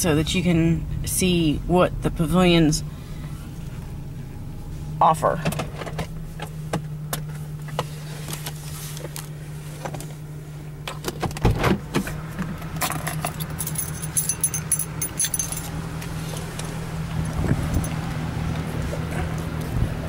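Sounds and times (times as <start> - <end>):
low steady hum: 0.0 - 20.0
keys jangling: 12.8 - 15.8.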